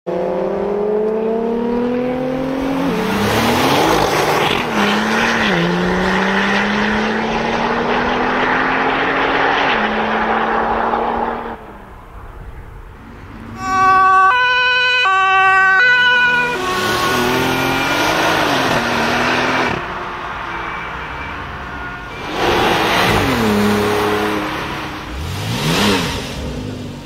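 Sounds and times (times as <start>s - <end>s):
car engine accelerating with upshifts: 0.1s - 11.8s, 15.8s - 19.9s, 22.1s - 27.0s.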